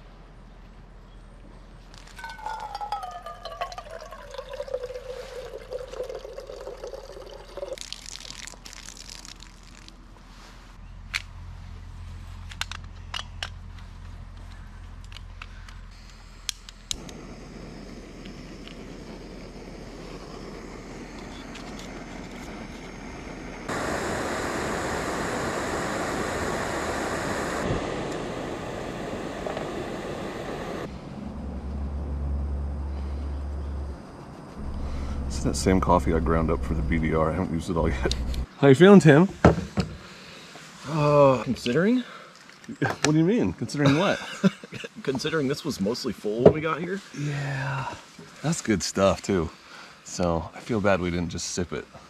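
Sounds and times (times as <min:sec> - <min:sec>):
water pouring into mug: 0:02.1 - 0:09.4
gas stove hissing: 0:16.0 - 0:31.0, 0:34.6 - 0:38.5.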